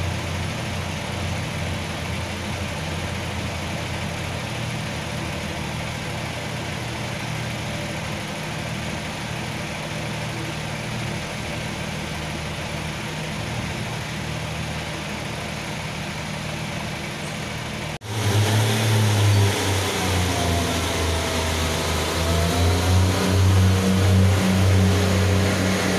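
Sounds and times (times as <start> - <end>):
diesel engine running loud: 0.0 - 25.9
diesel engines idling: 0.0 - 25.9.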